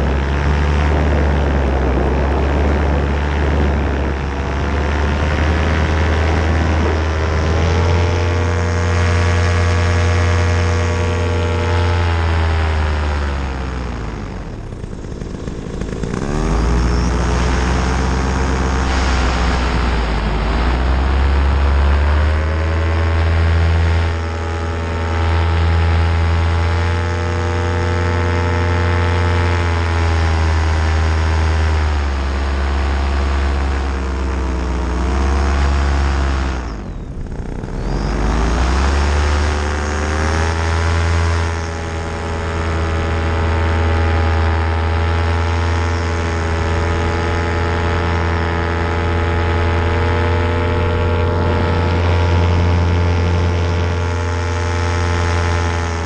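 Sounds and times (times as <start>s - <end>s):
paramotor engine and propeller: 0.0s - 56.0s.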